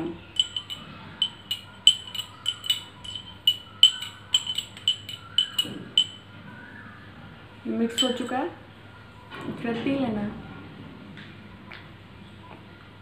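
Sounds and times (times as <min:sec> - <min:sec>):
metal spoon clinking against glass: 0:00.4 - 0:06.3, 0:07.9 - 0:08.5.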